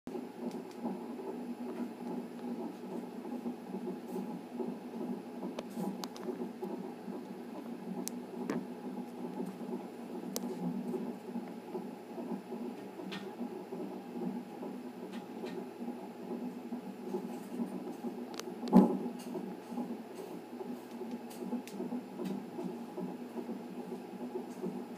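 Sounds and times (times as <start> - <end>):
fetal heartbeat whooshing pulse: 0.1 - 24.9.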